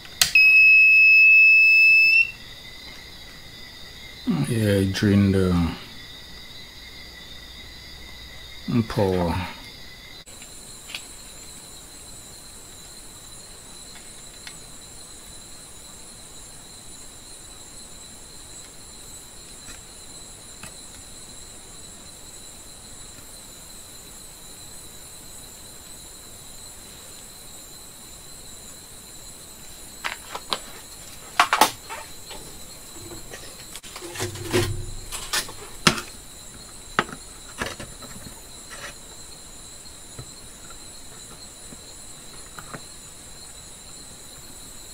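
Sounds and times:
crickets trilling: 0.0s - 44.9s
low thump: 34.0s - 36.1s.

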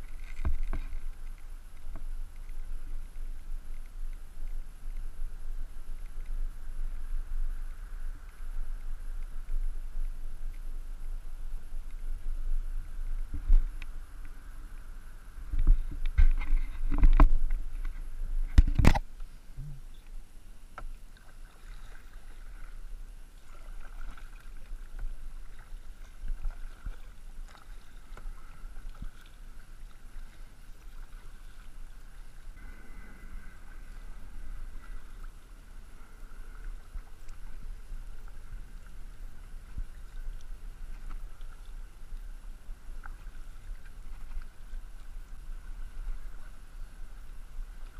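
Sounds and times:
paddle blades dipping: 0.0s - 47.9s
water lapping at hull: 0.0s - 47.9s
wind rumble on microphone: 0.0s - 47.9s.

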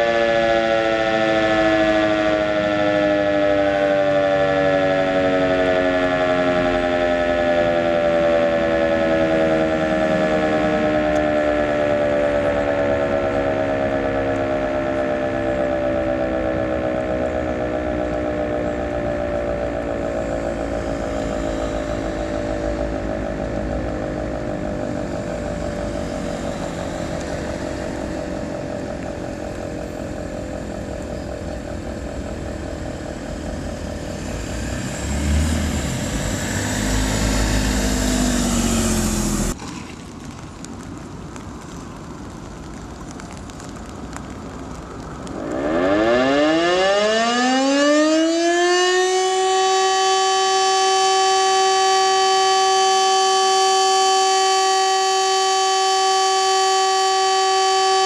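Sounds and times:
siren winding down: 0.0s - 39.6s, 45.3s - 58.0s
street traffic noise: 0.0s - 58.0s
car passing: 0.6s - 39.9s.

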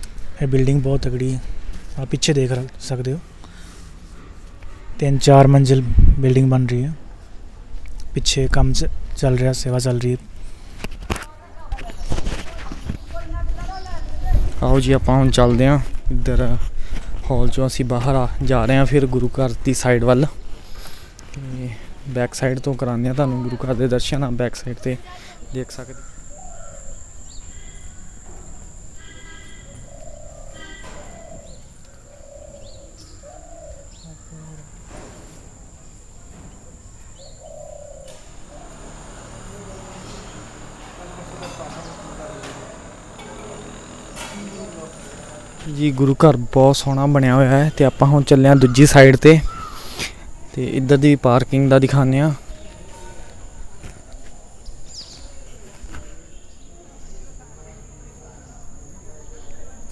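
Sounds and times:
small birds chirping: 11.3s - 14.6s, 20.2s - 59.9s
bird chirp: 25.4s - 34.9s, 35.6s - 46.0s
high-pitched insect drone: 25.7s - 31.3s, 38.1s - 46.2s
dove cooing: 26.0s - 34.8s, 37.1s - 39.1s
faint voices: 33.6s - 50.8s.

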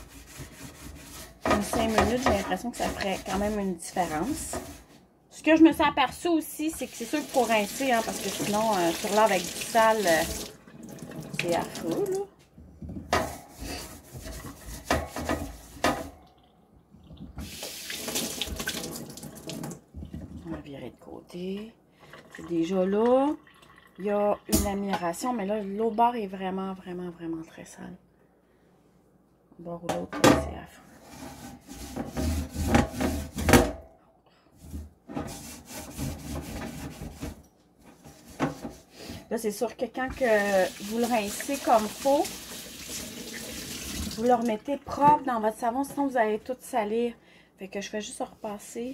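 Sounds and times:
sponge scrubbing wire rack: 0.0s - 5.0s, 6.8s - 10.4s, 13.1s - 16.1s, 31.0s - 33.6s, 35.1s - 38.9s, 40.2s - 43.4s
tap water rushing into sink: 6.7s - 12.2s, 17.1s - 20.3s, 40.1s - 45.0s.

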